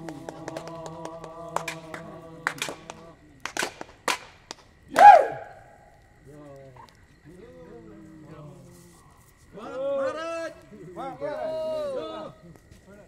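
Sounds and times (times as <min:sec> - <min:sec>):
voices singing a chord: 0:00.0 - 0:03.4.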